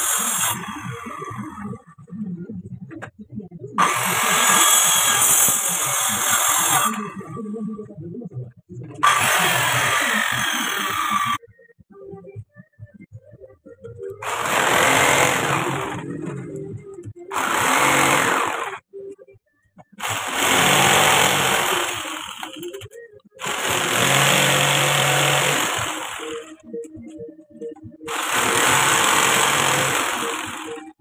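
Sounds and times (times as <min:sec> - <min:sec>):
power tool cutting wood: 0:00.0 - 0:01.2, 0:03.8 - 0:07.1, 0:09.0 - 0:11.4, 0:14.2 - 0:16.4, 0:17.3 - 0:18.8, 0:20.0 - 0:22.8, 0:23.4 - 0:26.6, 0:28.1 - 0:31.0.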